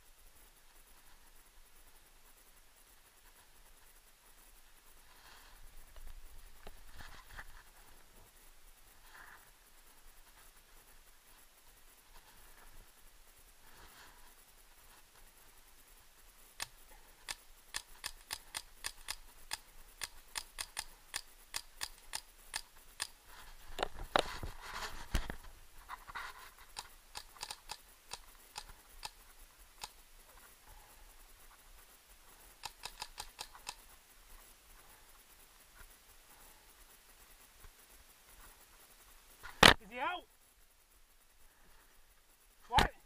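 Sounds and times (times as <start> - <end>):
rustling scrape near microphone: 6.8 - 7.8, 23.3 - 26.7
paintball markers popping: 17.3 - 23.1, 26.7 - 29.2.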